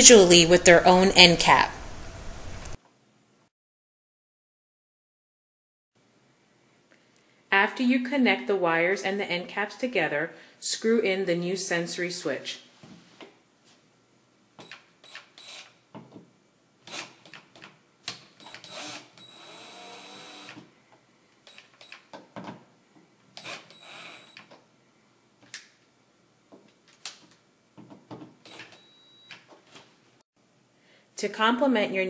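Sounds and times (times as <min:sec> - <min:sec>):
cordless drill driving screws: 0:15.0 - 0:15.7, 0:16.9 - 0:17.3, 0:18.4 - 0:20.6, 0:23.4 - 0:24.4.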